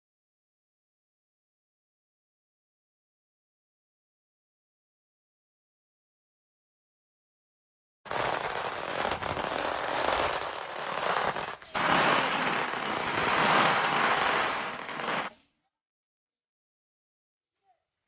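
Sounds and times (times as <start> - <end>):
firecrackers crackling: 8.1 - 15.4.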